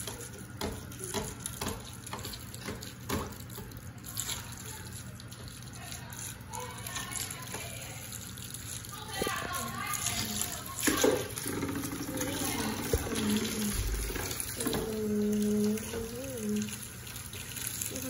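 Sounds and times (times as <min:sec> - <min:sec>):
bathtub tap running into water: 0:10.8 - 0:18.0.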